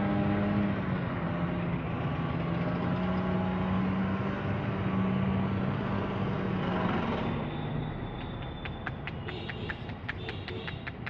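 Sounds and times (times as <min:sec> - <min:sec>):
engine droning: 0:00.0 - 0:11.0.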